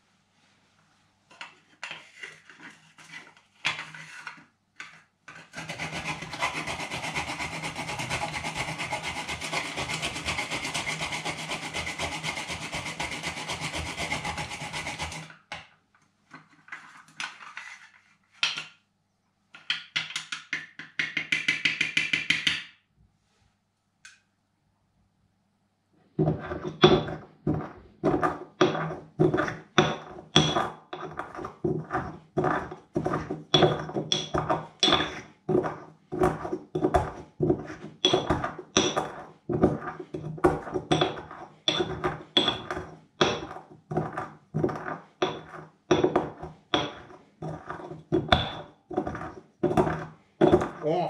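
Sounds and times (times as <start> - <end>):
pestle pounding in ceramic mortar: 5.6 - 15.3, 26.2 - 51.0.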